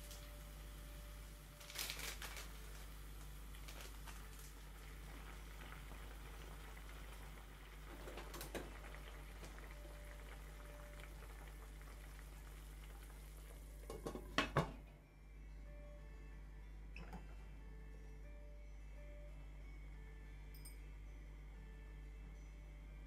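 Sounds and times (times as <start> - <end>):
stock simmering in a pan: 0.0 - 14.8.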